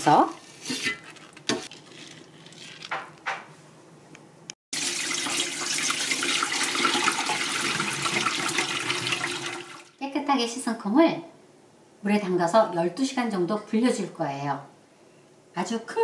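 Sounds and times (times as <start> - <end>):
tap water running into a bowl: 4.8 - 10.0.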